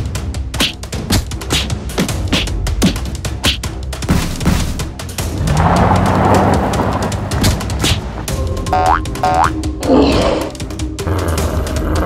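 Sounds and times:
background music: 0.0s - 12.0s
engine rumble sound effect: 4.9s - 11.3s.

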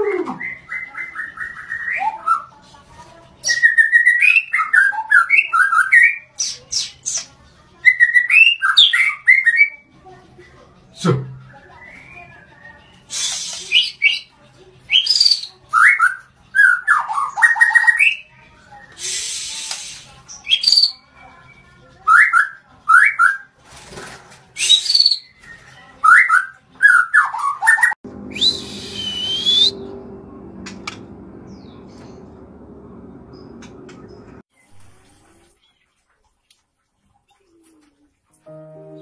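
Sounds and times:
bird singing whistled phrases: 0.3s - 2.5s, 3.4s - 6.2s, 11.6s - 14.3s, 14.9s - 18.2s, 18.8s - 21.0s, 24.6s - 29.9s
low hum: 28.0s - 34.4s.

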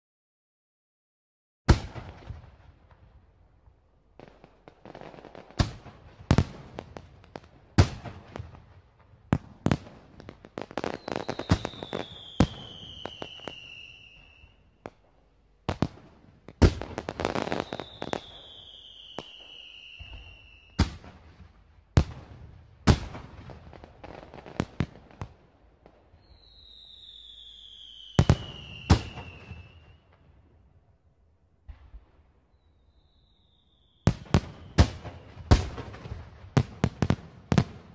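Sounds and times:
fireworks bangs: 1.7s - 3.4s, 4.2s - 30.4s, 31.6s - 37.9s
fireworks crackling: 4.2s - 30.2s
falling fireworks whistles: 9.3s - 21.4s, 25.9s - 30.5s, 31.8s - 37.9s.

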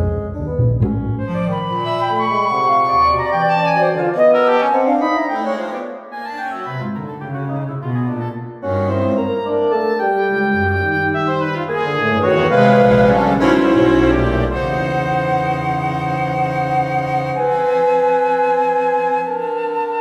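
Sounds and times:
atonal chamber music: 0.0s - 20.0s.

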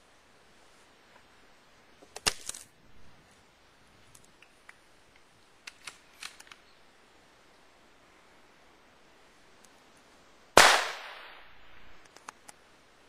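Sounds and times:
sharp clicks and snaps: 4.1s - 6.6s, 12.0s - 12.6s.

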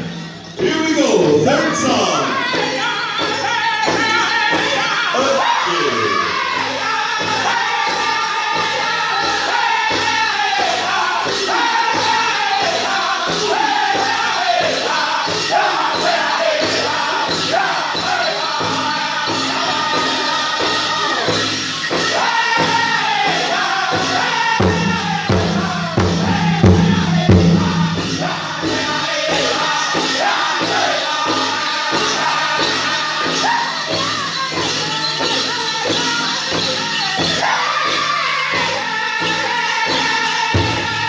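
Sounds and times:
group singing: 0.0s - 41.0s
big drum steady beat: 20.6s - 30.8s.

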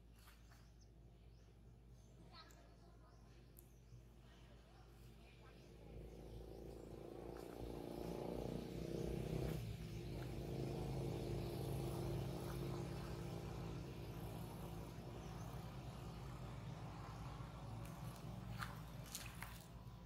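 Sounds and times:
vehicle engine humming: 5.6s - 20.0s.

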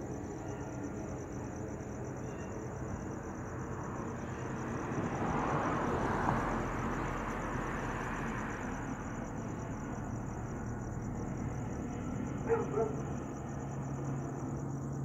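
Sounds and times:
crickets chirping: 0.0s - 15.0s.

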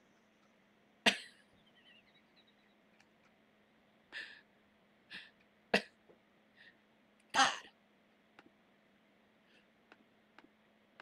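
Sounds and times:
faint steady hum: 0.0s - 11.0s
person breathing: 4.1s - 4.5s, 5.1s - 5.4s, 6.5s - 6.8s.

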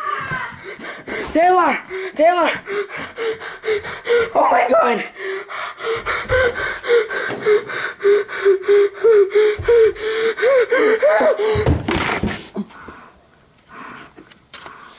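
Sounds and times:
person panting in panic: 0.0s - 11.8s
wavering whimper: 5.9s - 11.5s.

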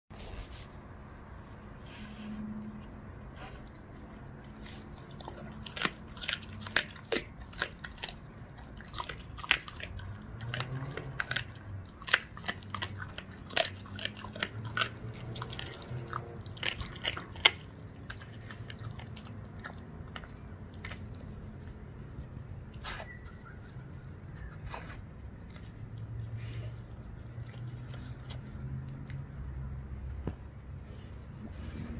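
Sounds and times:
dog crunching bones: 3.6s - 23.6s.

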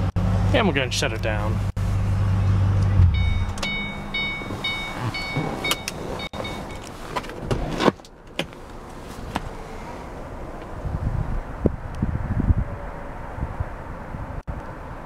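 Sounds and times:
car engine cutting off: 0.0s - 6.5s
car warning chime dinging: 3.0s - 6.9s
car seat clunk: 3.0s - 8.6s
seat lever clicks: 5.2s - 6.0s, 6.7s - 9.5s.

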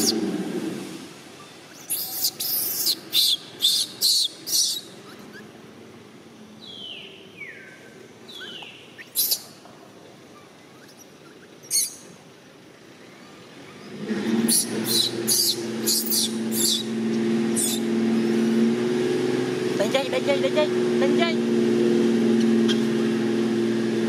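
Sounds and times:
shrill animal calls: 0.0s - 0.4s, 1.7s - 5.6s, 8.3s - 9.6s, 10.3s - 12.2s, 14.2s - 17.9s.

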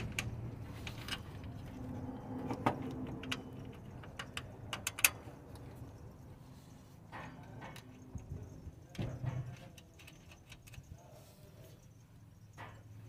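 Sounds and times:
metallic clicks and taps: 2.4s - 6.0s.

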